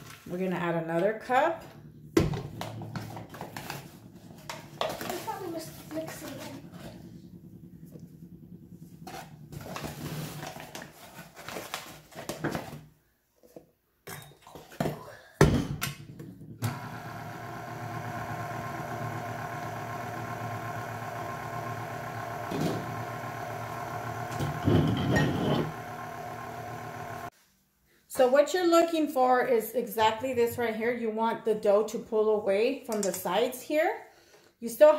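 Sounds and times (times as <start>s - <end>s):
stand mixer motor running: 1.8s - 10.6s, 16.6s - 27.3s
scraping and clatter in steel bowl: 24.6s - 25.7s.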